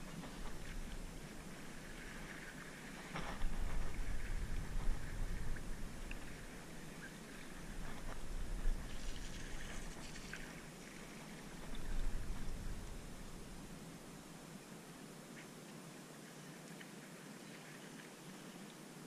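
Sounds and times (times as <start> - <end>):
low rumble on microphone: 0.0 - 14.4
faint hiss: 0.0 - 19.0.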